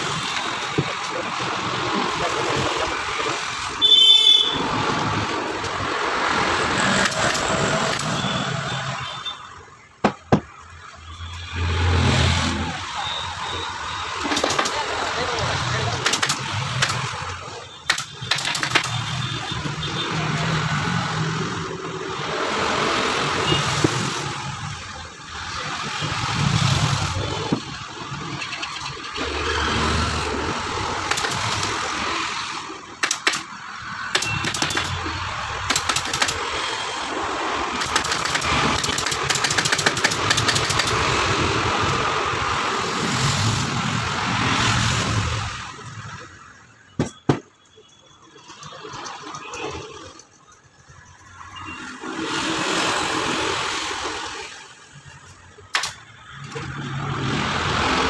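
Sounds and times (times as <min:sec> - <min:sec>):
passing motor traffic: 0:00.0 - 0:09.2, 0:10.0 - 0:47.4, 0:48.2 - 0:58.0
staple gun clacks: 0:33.0 - 0:33.5, 0:35.6 - 0:36.4, 0:37.8 - 0:41.0, 0:55.7 - 0:56.0.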